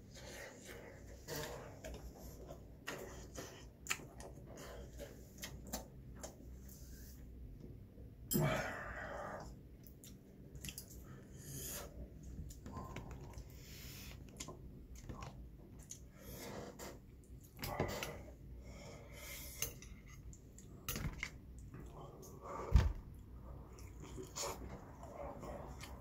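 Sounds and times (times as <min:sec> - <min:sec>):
person chewing: 0:23.7 - 0:26.0.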